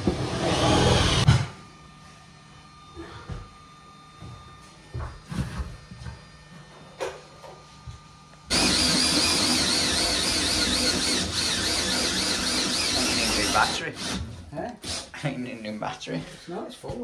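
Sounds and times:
cordless drill with hole saw: 0.1s - 1.3s, 8.5s - 15.1s.

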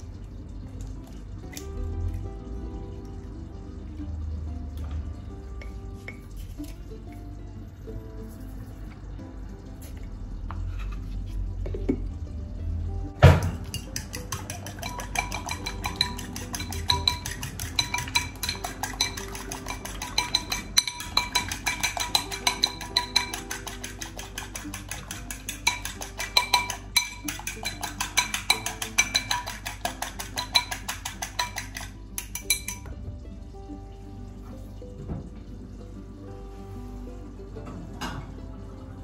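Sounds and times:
background music: 0.0s - 39.0s
fork beating eggs in bowl: 13.6s - 32.8s.

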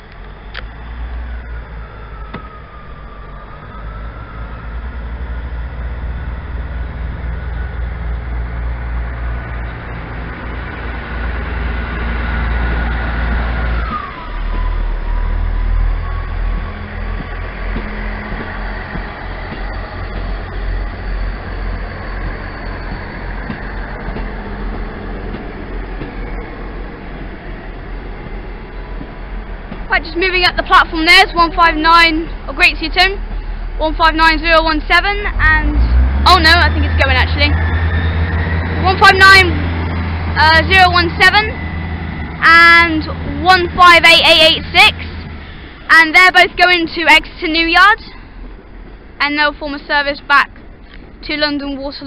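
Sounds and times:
diesel train engine hum: 0.0s - 52.0s
train whine: 0.0s - 52.0s.

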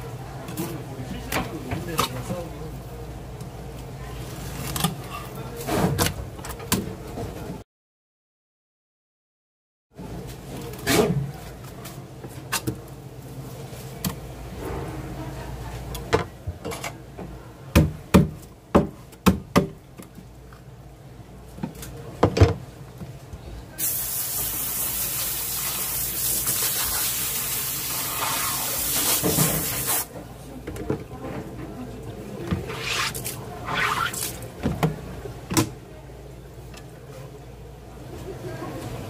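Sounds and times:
hose spraying water: 23.8s - 30.1s.

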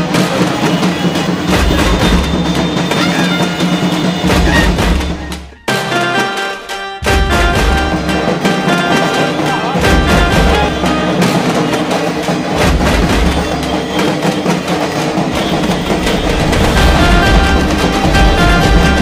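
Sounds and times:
marching band music with drums: 0.0s - 19.0s.

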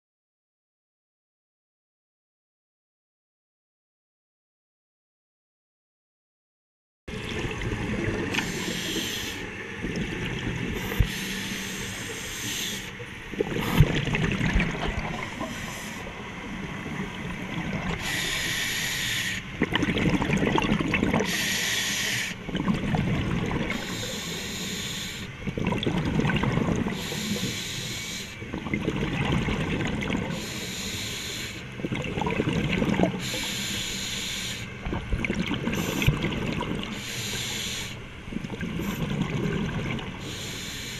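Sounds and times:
exhaled bubbles rumbling: 7.1s - 12.3s, 12.9s - 18.5s, 19.5s - 21.4s, 22.4s - 24.1s, 25.4s - 27.4s, 28.4s - 30.4s, 31.7s - 33.4s, 34.7s - 37.0s, 38.2s - 40.2s
regulator hissing inhalations: 8.4s - 9.5s, 10.8s - 13.0s, 15.3s - 16.4s, 18.0s - 19.5s, 21.3s - 22.4s, 23.7s - 25.3s, 26.9s - 28.4s, 30.3s - 31.7s, 33.2s - 34.8s, 36.9s - 38.0s, 40.2s - 40.9s.

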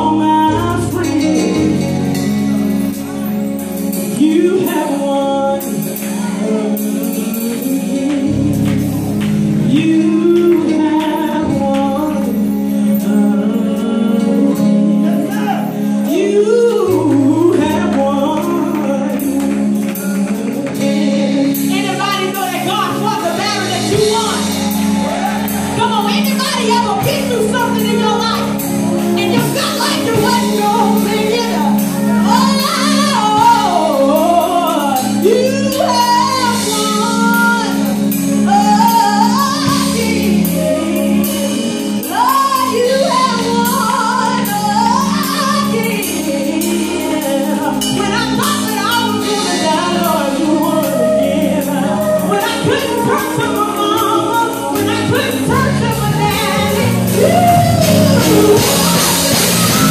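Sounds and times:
woman singing: 0.0s - 2.2s, 3.9s - 59.9s
sustained accompaniment chords: 53.4s - 59.9s.

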